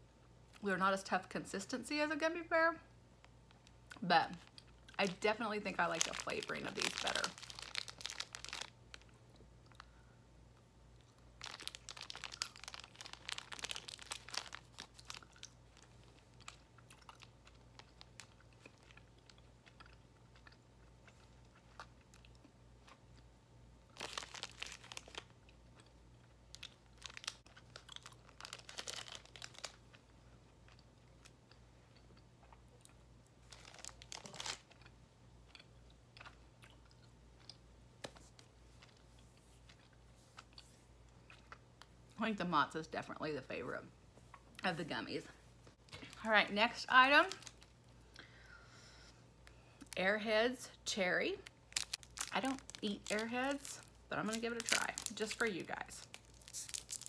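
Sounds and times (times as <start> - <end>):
plastic pouch crinkling: 4.4 - 9.2, 11.4 - 19.4, 23.9 - 25.4, 26.5 - 30.0, 33.4 - 34.9, 45.9 - 47.9, 51.4 - 57.0
faint chewing: 11.9 - 23.3.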